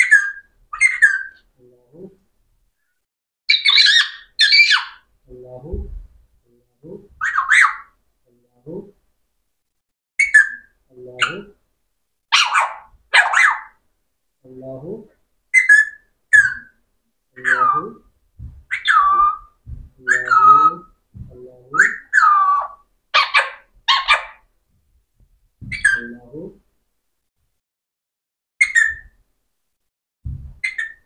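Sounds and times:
parakeet whistles and squawks: 0:00.0 - 0:01.4, 0:03.5 - 0:05.0, 0:07.2 - 0:07.9, 0:10.2 - 0:11.4, 0:15.6 - 0:16.8, 0:25.7 - 0:26.1, 0:28.6 - 0:29.2, 0:30.6 - 0:31.0.

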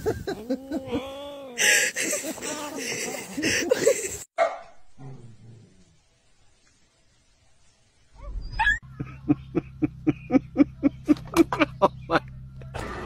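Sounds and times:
steady low hum: 0:08.9 - 0:12.8.

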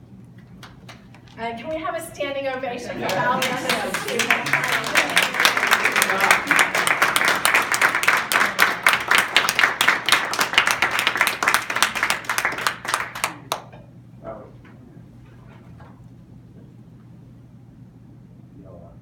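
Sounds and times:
people applauding: 0:02.9 - 0:13.8.

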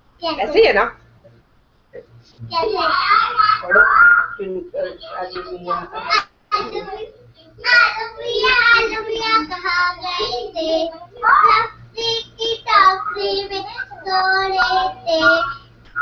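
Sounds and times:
young girls singing: 0:05.1 - 0:15.6.

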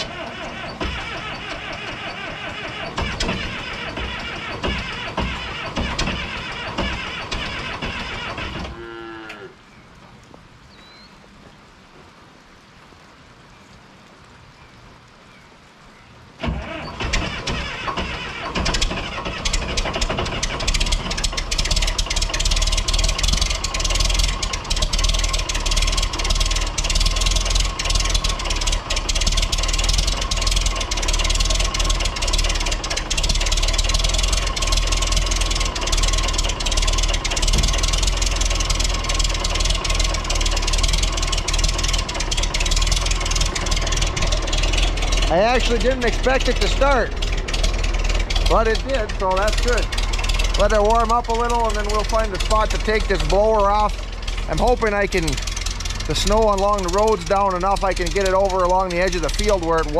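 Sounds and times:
tractor engine starting and idling: 0:00.0 - 0:09.5, 0:16.4 - 0:59.9
light rain hiss: 0:00.0 - 0:59.9.

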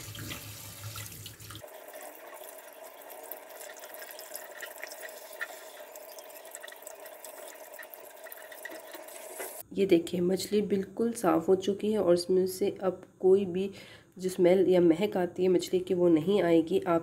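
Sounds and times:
tap water running and splashing: 0:00.0 - 0:09.6
water drips and splashes: 0:00.0 - 0:09.6.

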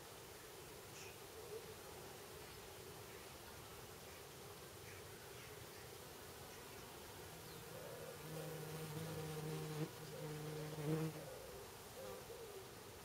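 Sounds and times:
insect buzzing: 0:08.1 - 0:11.2.

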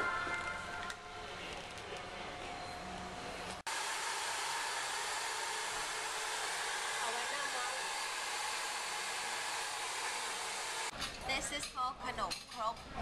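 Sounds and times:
hair dryer blowing: 0:03.7 - 0:10.9.

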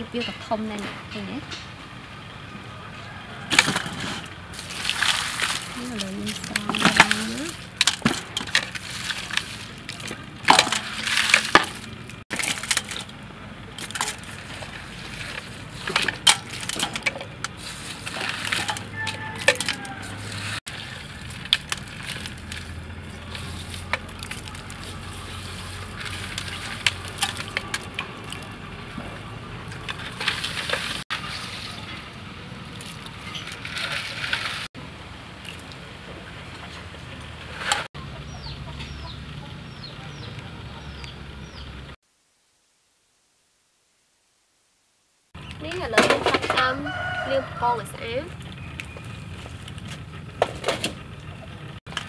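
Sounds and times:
crushed ice crunching in metal basin: 0:03.4 - 0:34.7, 0:45.4 - 0:52.0
prawn shells clattering: 0:03.5 - 0:28.6.

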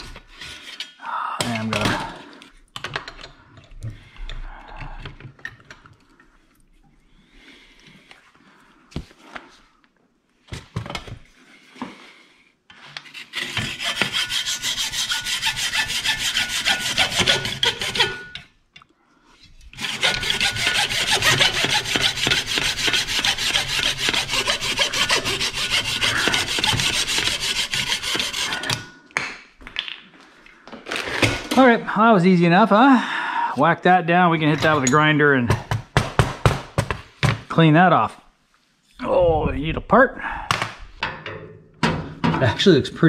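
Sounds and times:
hacksaw cutting plastic: 0:13.0 - 0:18.4, 0:19.7 - 0:28.9.

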